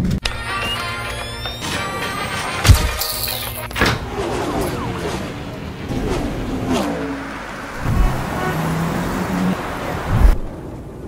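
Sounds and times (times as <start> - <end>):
background music: 0.2 - 7.3
road traffic noise: 0.4 - 11.0.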